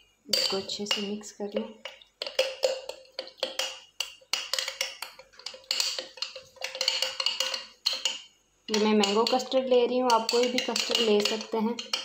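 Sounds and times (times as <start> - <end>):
metal spoon clinking against glass: 5.4 - 12.0.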